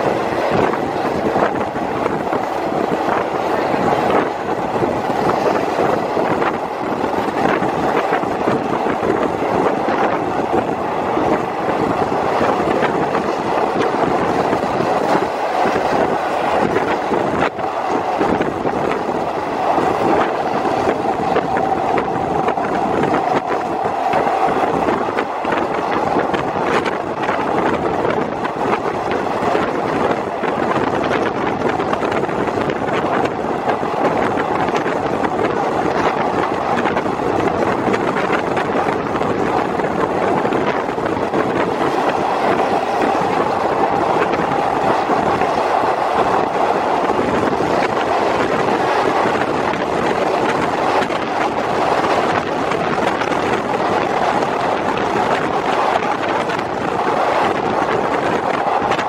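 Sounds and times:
train wheels on rails: 0.0s - 59.0s
wind rushing past train window: 0.0s - 59.0s.

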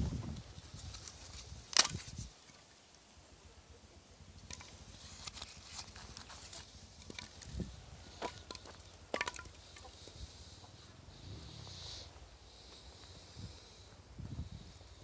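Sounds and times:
footsteps on dirt path: 4.6s - 11.0s.

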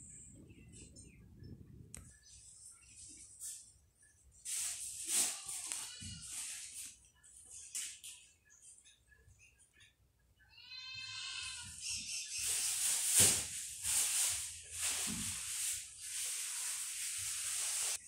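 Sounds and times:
steady hiss: 12.4s - 18.0s.

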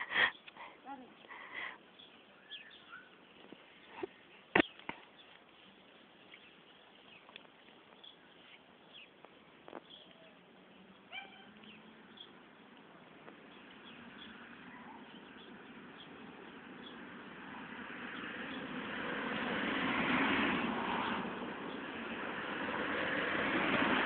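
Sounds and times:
bird chirps: 2.0s - 12.4s.

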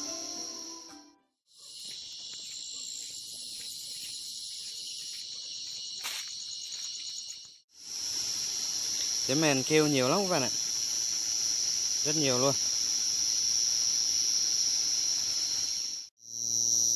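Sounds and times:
crickets trilling: 1.5s - 16.9s.

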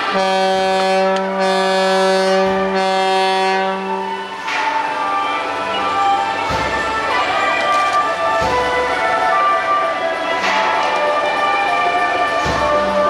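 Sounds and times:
boat horn long note: 0.0s - 4.2s.

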